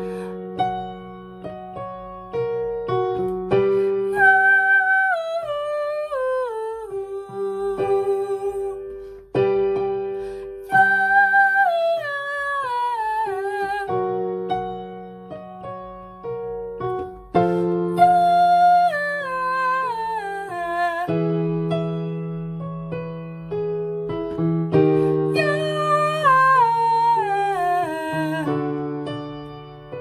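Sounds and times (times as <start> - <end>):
keyboard chords: 0.0 - 4.1, 13.8 - 18.6, 21.1 - 30.0
woman singing vocal runs: 4.1 - 8.9, 10.6 - 14.2, 25.2 - 28.8.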